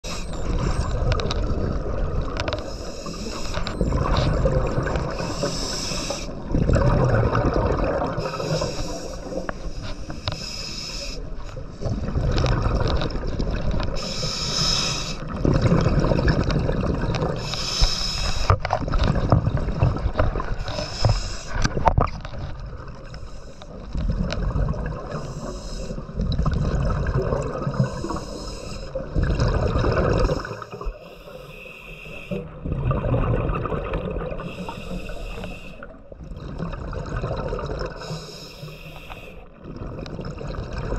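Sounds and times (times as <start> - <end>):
regulator hiss on inhale: 2.6 - 3.8, 5.1 - 6.4, 8.2 - 11.4, 14.0 - 15.3, 17.4 - 18.6, 20.6 - 21.6, 25.1 - 26.1, 27.8 - 29.0, 30.7 - 32.5, 34.4 - 35.9, 38.0 - 39.5
bubbles rushing on exhale: 6.4 - 9.4, 11.8 - 14.0, 15.2 - 17.4, 24.0 - 25.2, 26.1 - 28.2, 29.0 - 31.0, 32.6 - 34.7, 36.2 - 38.1, 39.6 - 40.9.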